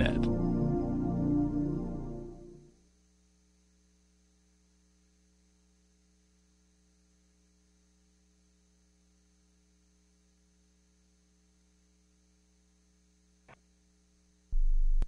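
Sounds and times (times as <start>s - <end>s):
background music: 0.0s - 2.8s
faint electrical hum: 0.0s - 15.0s.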